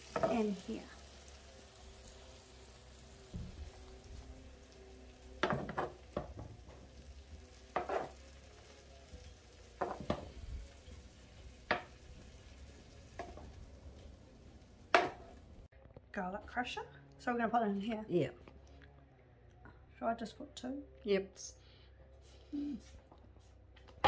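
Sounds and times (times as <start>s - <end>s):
beef sizzling in pan: 0.0s - 15.7s.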